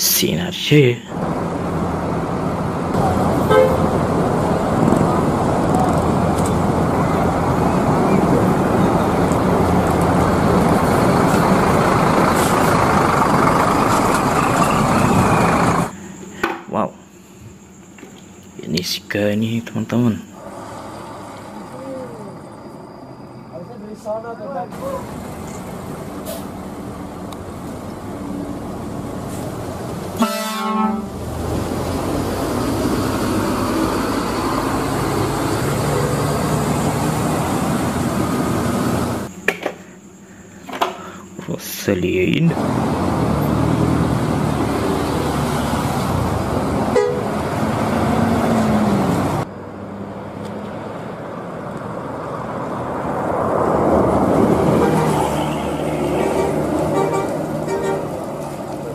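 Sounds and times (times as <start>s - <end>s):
bus diesel engine running: 0.0s - 16.4s, 18.2s - 58.9s
tires on wet pavement: 1.1s - 16.0s, 20.4s - 22.9s, 24.1s - 39.3s, 42.5s - 58.9s
coach approaching: 1.3s - 15.9s
loud bus horn blast: 3.4s - 4.0s, 30.2s - 31.2s, 46.9s - 47.4s, 54.7s - 58.2s.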